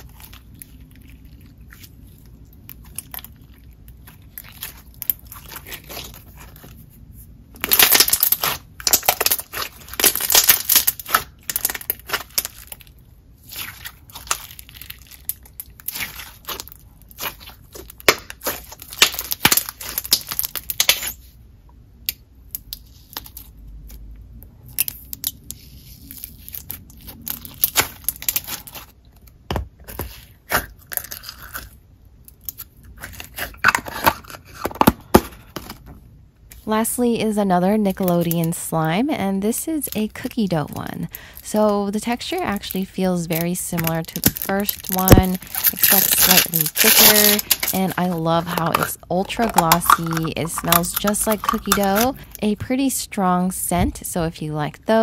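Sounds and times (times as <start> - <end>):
slime squishing with wet clicks: 0.0 - 6.6, 7.6 - 33.6.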